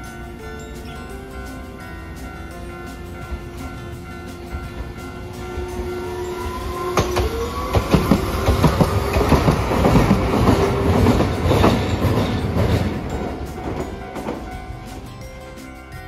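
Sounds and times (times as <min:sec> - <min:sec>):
tram wheels clacking over rail joints: 0:02.6 - 0:15.2.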